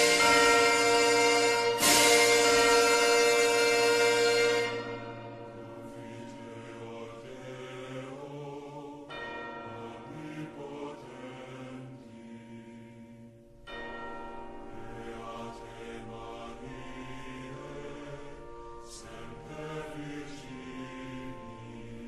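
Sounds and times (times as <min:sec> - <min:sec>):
orchestral chord: 0:00.0 - 0:07.9
choir chanting: 0:00.0 - 0:22.0
church bell tolling: 0:00.0 - 0:22.0.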